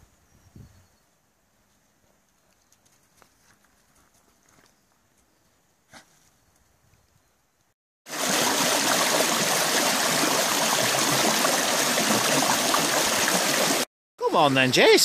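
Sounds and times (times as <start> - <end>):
stream rushing and splashing: 8.1 - 14.9.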